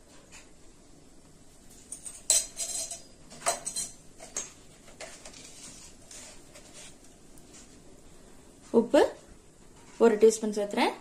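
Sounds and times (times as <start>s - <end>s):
metal spoon clinking on pot: 1.9s - 4.5s.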